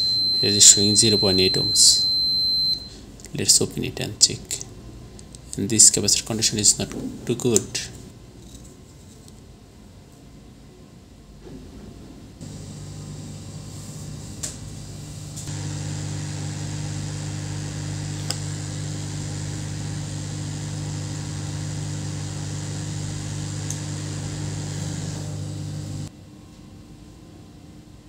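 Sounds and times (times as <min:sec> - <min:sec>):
electric blower fan humming: 0:12.4 - 0:26.1.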